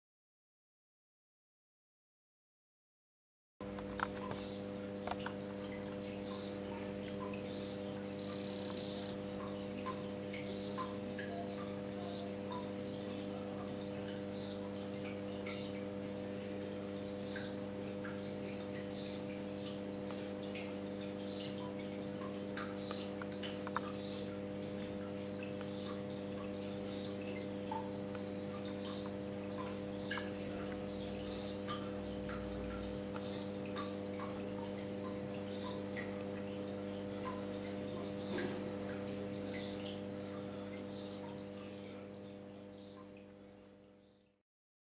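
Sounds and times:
low electrical hum: 3.6s - 44.4s
frog calling: 3.8s - 15.9s, 17.2s - 17.6s, 18.2s - 20.2s, 21.2s - 36.1s, 37.1s - 42.0s, 42.8s - 43.2s.

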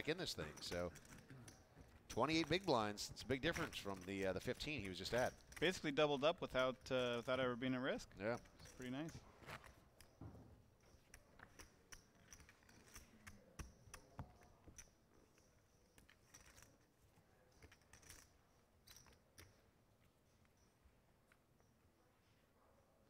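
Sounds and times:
poker chips and cards clicking: 0.1s - 7.4s, 10.8s - 19.6s.

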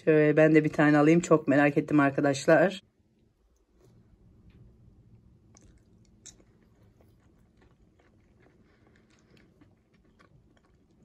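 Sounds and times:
chewing olive: 4.5s - 11.0s.

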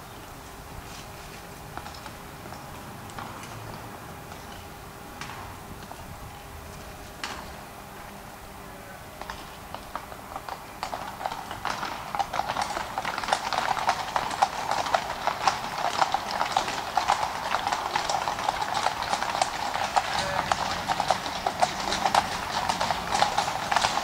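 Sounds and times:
horse hooves on cobblestones: 0.0s - 24.0s.

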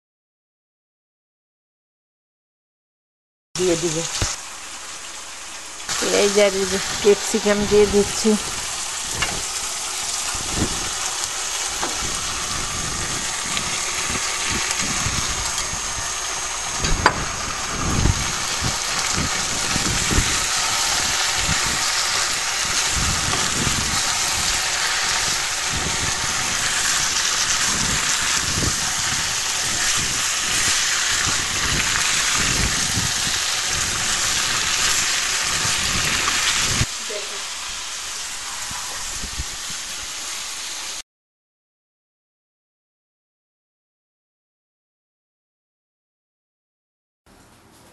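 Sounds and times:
food sizzling in frying pan: 3.6s - 41.0s.

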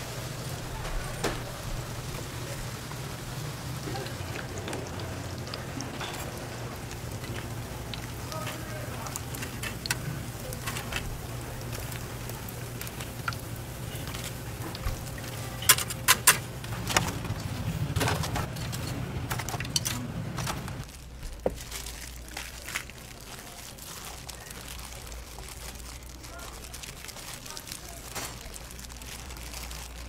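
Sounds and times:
oil sizzling in deep fryer: 0.0s - 19.8s
metal tongs clinking on rack: 15.6s - 16.5s.

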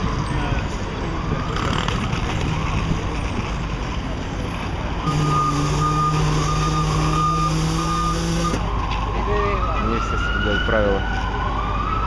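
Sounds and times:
city street traffic: 0.0s - 12.0s
reversing alarm beeping: 5.0s - 10.9s.

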